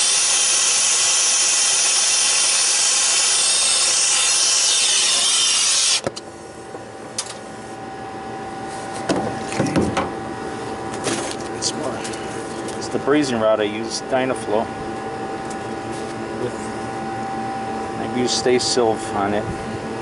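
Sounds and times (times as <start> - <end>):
brazing torch flame hissing: 0.0 - 6.0
steady hum: 0.0 - 20.0.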